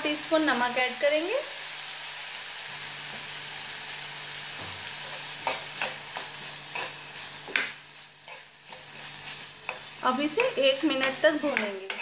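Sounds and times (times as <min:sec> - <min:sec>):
vegetables sizzling in oil: 0:00.0 - 0:12.0
metal spoon scraping pan: 0:05.0 - 0:12.0.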